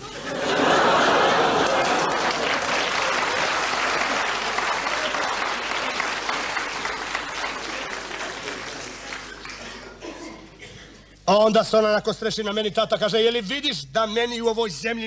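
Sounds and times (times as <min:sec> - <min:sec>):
audience applauding: 0:00.4 - 0:10.0.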